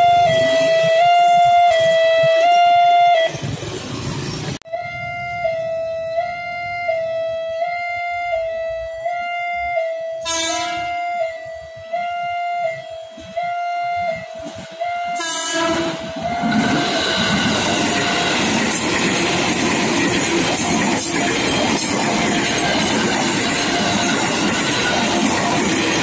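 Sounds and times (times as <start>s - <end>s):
train horn blasts: 4.7s - 16.8s
level crossing two-tone alarm: 4.7s - 18.3s, 19.5s - 25.3s.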